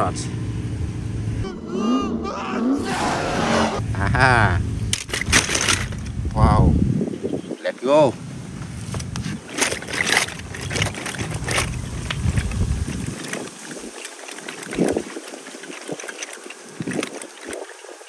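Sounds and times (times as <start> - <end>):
toy cars clicking and rustling: 4.9 - 6.2, 8.9 - 18.0.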